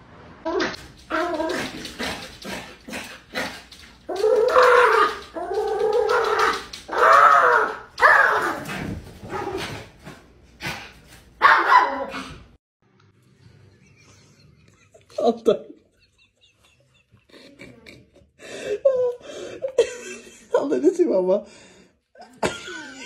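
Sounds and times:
small dog barking and whining: 4.1s - 8.7s, 11.4s - 12.3s
dog yipping: 11.4s - 12.2s.

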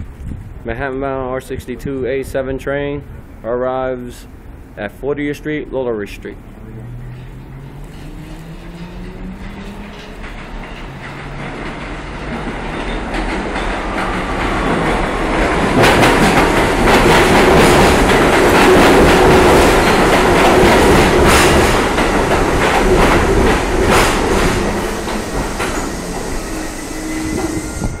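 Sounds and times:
subway train passing: 3.0s - 28.0s
wheels clacking over rail joints: 7.0s - 26.4s
thin wheel squeal: 25.6s - 28.0s.

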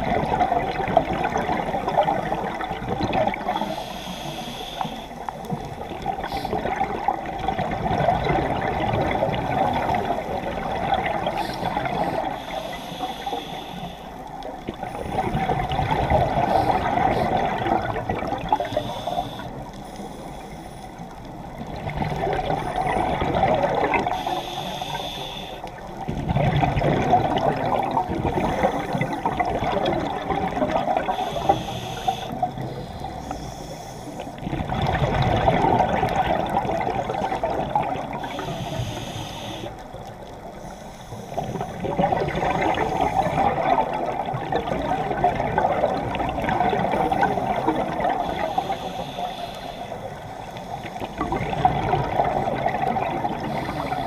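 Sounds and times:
gurgling exhaled bubbles: 0.0s - 4.4s, 5.4s - 13.3s, 14.4s - 19.7s, 21.3s - 25.0s, 25.8s - 33.3s, 34.2s - 40.6s, 41.3s - 49.2s, 50.1s - 54.0s
diver breathing through regulator: 3.4s - 6.8s, 9.9s - 17.7s, 18.4s - 21.2s, 22.4s - 25.9s, 28.2s - 29.6s, 30.9s - 34.5s, 37.4s - 44.0s, 46.7s - 51.6s, 52.2s - 54.0s.

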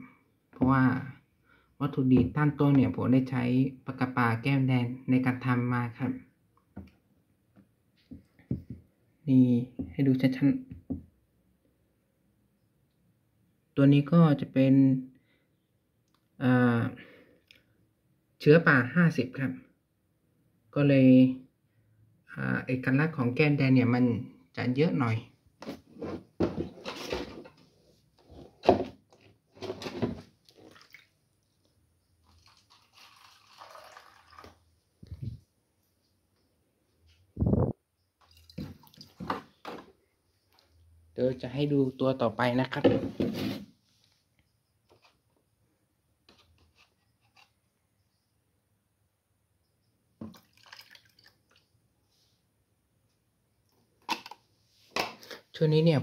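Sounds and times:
water sloshing in plastic tub: 29.6s - 34.6s, 38.2s - 40.0s, 50.2s - 51.7s
water pouring into plastic cup: 30.4s - 31.5s, 32.2s - 34.7s, 38.2s - 39.3s, 50.2s - 51.7s.

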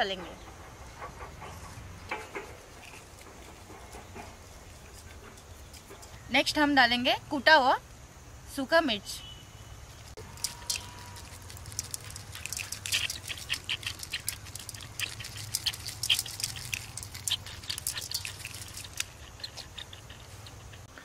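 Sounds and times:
chilli flakes pattering: 10.2s - 20.9s.

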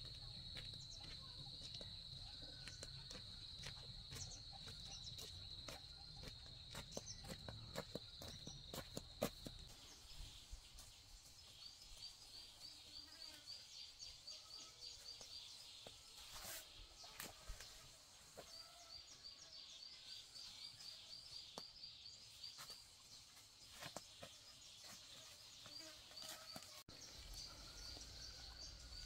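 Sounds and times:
bird chirping: 4.1s - 9.0s, 18.4s - 29.0s.

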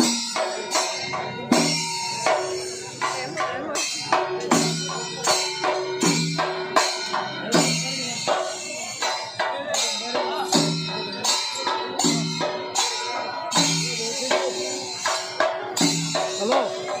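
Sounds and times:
percussion music: 0.0s - 17.0s
pitched drum beat: 0.0s - 17.0s.

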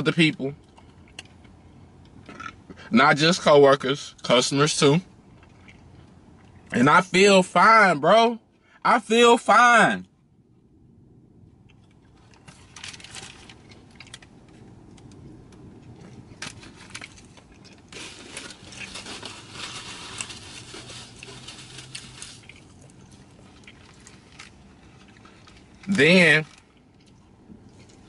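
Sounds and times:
small clicks and crackles: 11.6s - 28.0s
paper packaging rustling: 12.3s - 14.3s, 16.4s - 24.7s.

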